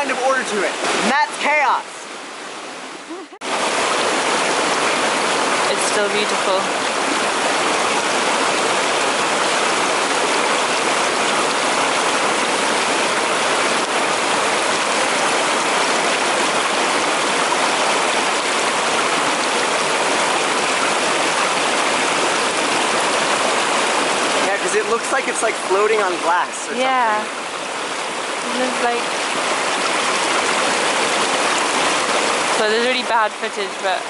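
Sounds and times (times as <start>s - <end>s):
stream rushing over rocks: 0.0s - 34.0s.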